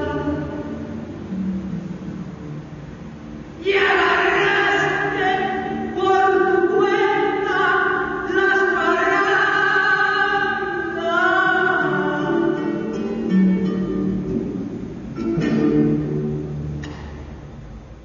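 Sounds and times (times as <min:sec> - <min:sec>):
person singing long held notes: 0:00.0 - 0:01.5, 0:03.6 - 0:12.9
musical accompaniment: 0:00.0 - 0:03.6, 0:10.6 - 0:17.6.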